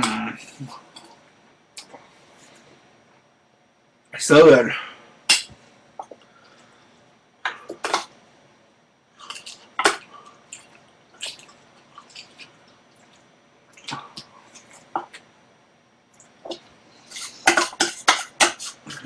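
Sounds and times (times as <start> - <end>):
wet chewing and lip-smacking: 9.3 - 15.2.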